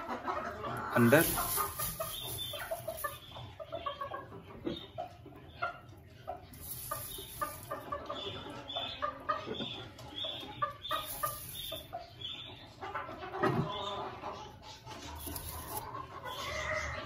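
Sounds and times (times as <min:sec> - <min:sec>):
chickens clucking: 0:00.0 - 0:17.0
straw rustling: 0:01.0 - 0:03.1.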